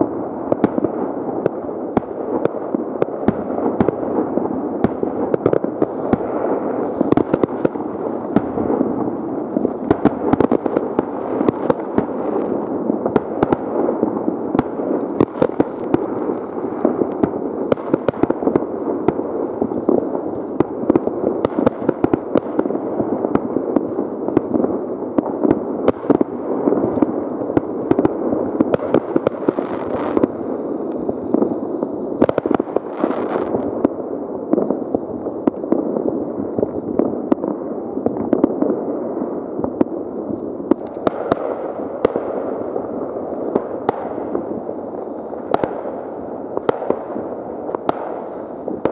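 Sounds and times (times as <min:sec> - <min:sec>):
fireworks rumble of bangs: 0:00.0 - 0:48.9
firecracker cracks: 0:04.8 - 0:22.6, 0:39.6 - 0:42.5, 0:43.2 - 0:48.9.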